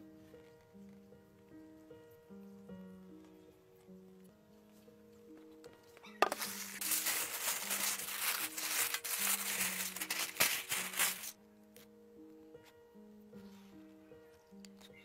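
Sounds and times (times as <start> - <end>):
soft background music: 0.0 - 15.0
aluminium foil crinkling: 6.2 - 11.4.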